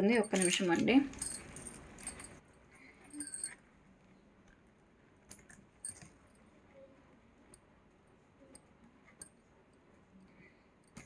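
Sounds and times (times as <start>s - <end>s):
necklace beads clinking: 0.0s - 3.7s, 5.2s - 6.5s.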